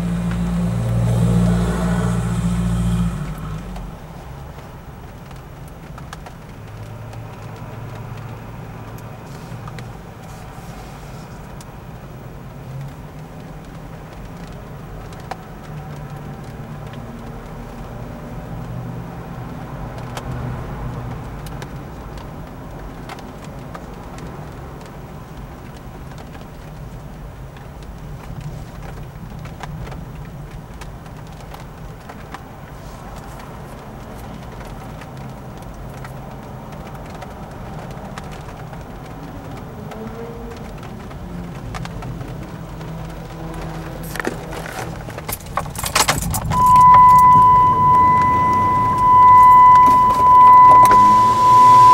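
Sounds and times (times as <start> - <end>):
car engine hum: 0.0 - 28.2, 28.8 - 51.9
road traffic: 0.0 - 51.9.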